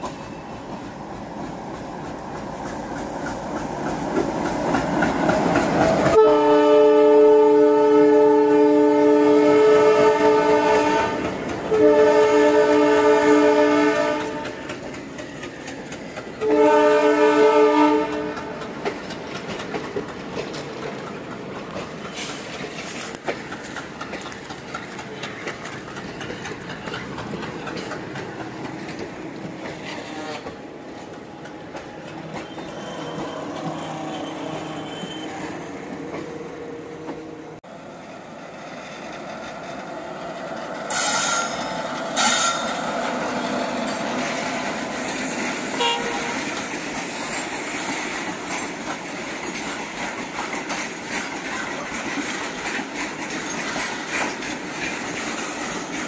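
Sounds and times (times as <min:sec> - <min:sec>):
train running noise: 0:00.0 - 0:56.0
locomotive horn blasts: 0:06.1 - 0:14.6, 0:16.4 - 0:18.6, 0:29.8 - 0:30.6, 0:33.0 - 0:35.5, 0:45.7 - 0:46.5.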